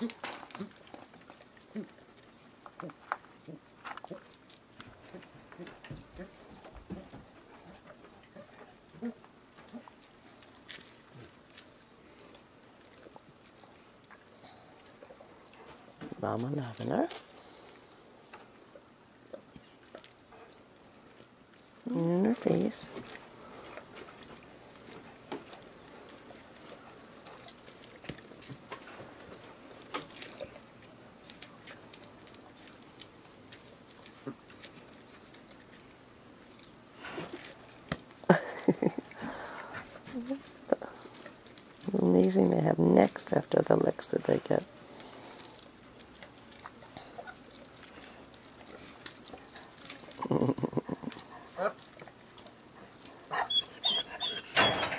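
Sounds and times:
pebbles clicking on gravel: 0.0s - 5.4s.

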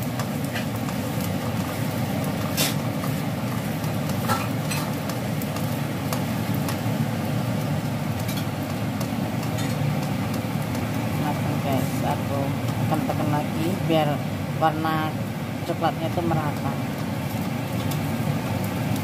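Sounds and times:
pancake sizzling in oil: 0.0s - 19.0s
spatula scraping and tapping: 8.2s - 10.8s.

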